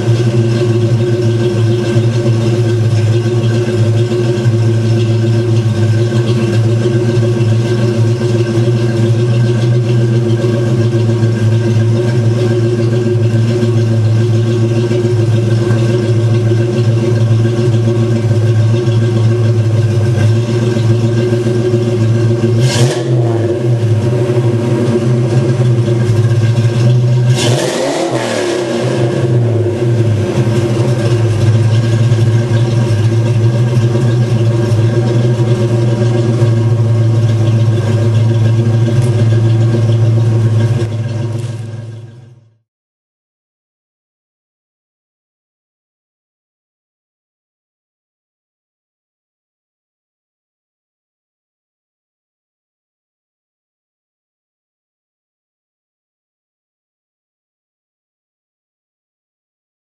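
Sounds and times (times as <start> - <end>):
car engine idling: 0.0 - 42.6
engine throttle blips: 0.0 - 42.6.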